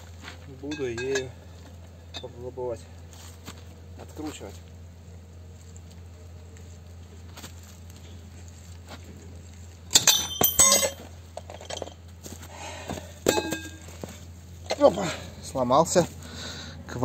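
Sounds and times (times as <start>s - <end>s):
metallic clinks and clatter: 9.9s - 12.1s, 13.2s - 14.8s.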